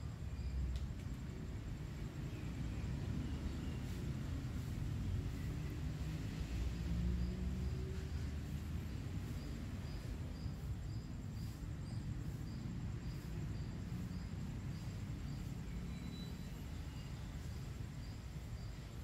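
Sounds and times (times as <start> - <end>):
faint high chirp: 15.6 - 17.6.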